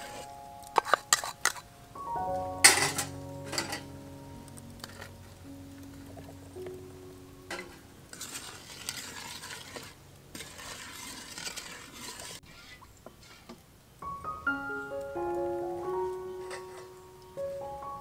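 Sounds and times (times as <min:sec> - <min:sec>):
soft piano music: 0:00.0 - 0:08.7, 0:14.0 - 0:18.0
stirring in a bowl: 0:08.1 - 0:12.8.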